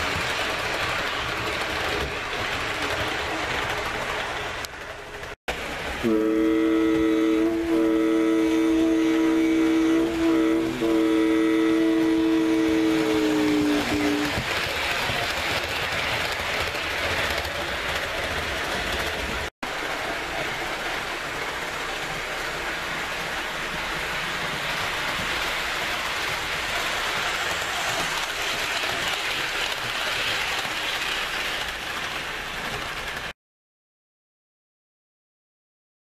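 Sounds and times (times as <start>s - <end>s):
model train wheels hissing on track: 7.3s - 33.3s.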